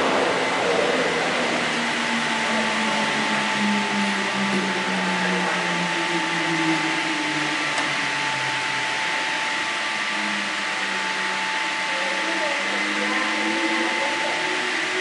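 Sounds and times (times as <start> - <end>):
high whining tones: 0.0 - 15.0
train rumble and hiss: 0.0 - 15.0
faint voices: 11.8 - 15.0.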